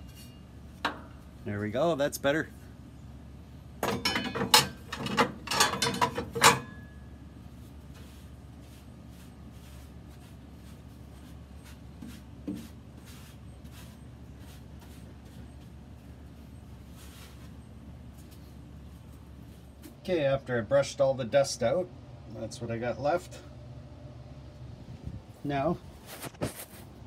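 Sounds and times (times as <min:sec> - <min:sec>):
metallic clanks ringing: 0:03.8 - 0:07.1
paintbrush sweeping ash: 0:08.0 - 0:15.4.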